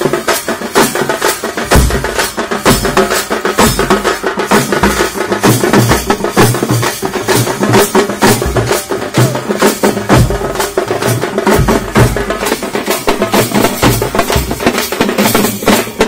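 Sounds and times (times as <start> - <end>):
frame drums beaten fast: 0.0 - 16.0.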